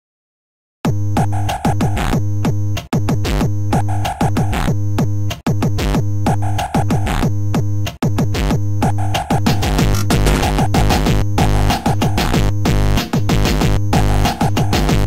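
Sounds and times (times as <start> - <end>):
drum machine beat: 7.9 - 15.0
synth bass: 8.9 - 14.3.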